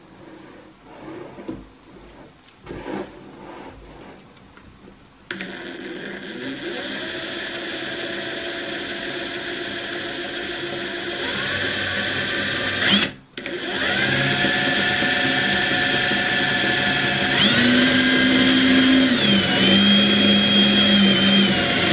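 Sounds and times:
impact driver spinning freely: 12.8s - 21.9s.

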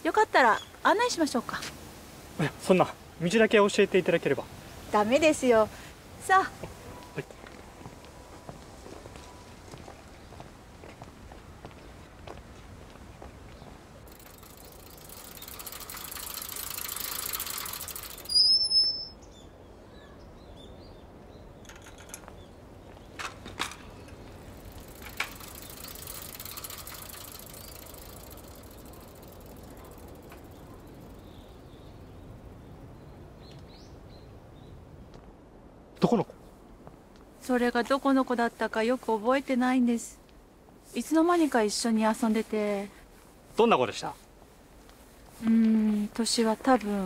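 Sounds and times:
faint outdoor hiss: 0.0s - 47.0s
bicycle squeal: 14.4s - 19.2s.

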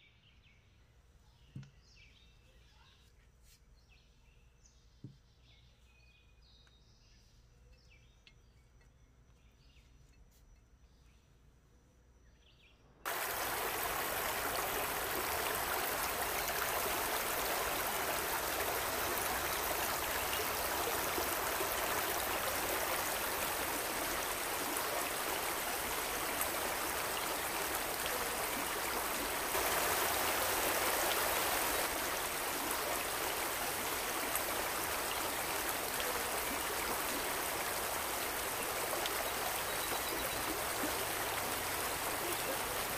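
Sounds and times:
waterfall rushing over rocks: 13.1s - 42.9s.

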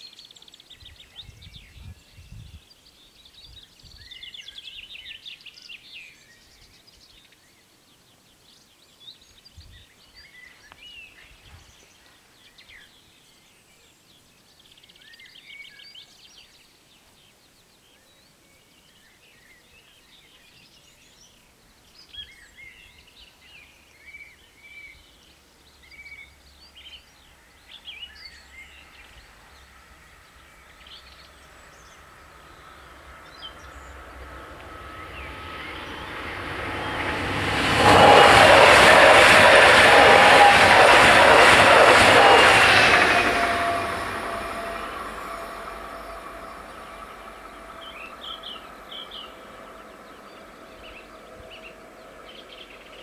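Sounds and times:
songbirds chirping: 0.0s - 36.4s
electric train rumble and whine: 26.3s - 53.0s.

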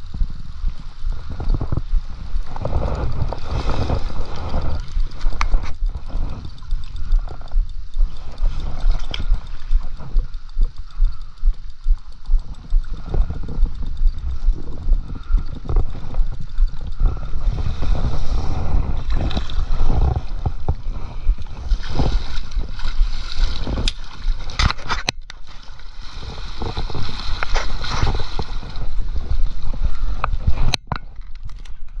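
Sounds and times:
water splashing and gurgling: 0.0s - 31.3s
clicks of net and reel: 0.0s - 32.0s
wind buffeting microphone: 0.0s - 32.0s.

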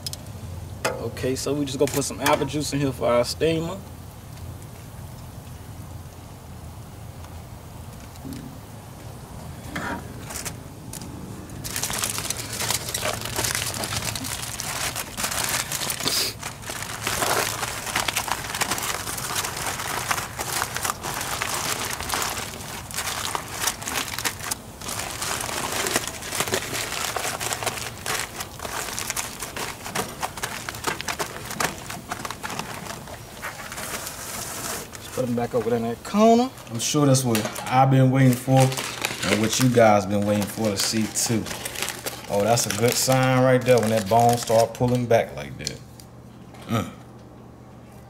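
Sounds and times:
aluminium foil crinkling: 1.5s - 2.6s, 10.1s - 45.8s.

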